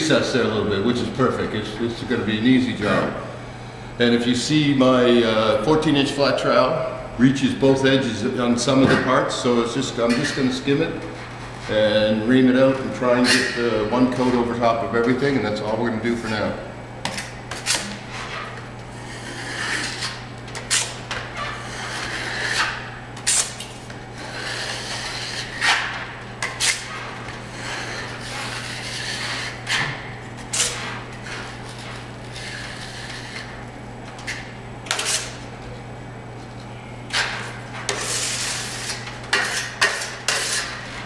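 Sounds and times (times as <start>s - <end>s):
trowel scraping across ceiling: 17.7s - 23.6s, 24.2s - 29.9s, 30.5s - 33.6s, 37.2s - 41.0s.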